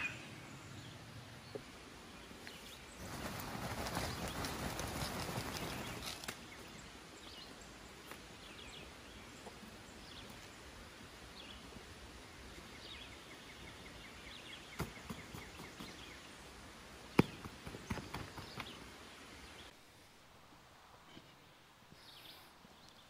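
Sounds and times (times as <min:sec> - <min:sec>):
faint bird chirps: 0:00.0 - 0:01.6
outdoor hiss: 0:00.0 - 0:23.0.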